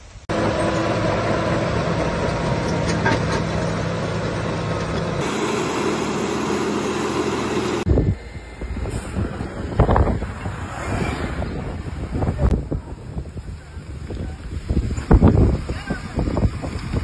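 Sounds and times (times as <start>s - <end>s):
bulldozer diesel engine: 0.1s - 17.0s
rushing wind-like noise: 7.8s - 17.0s.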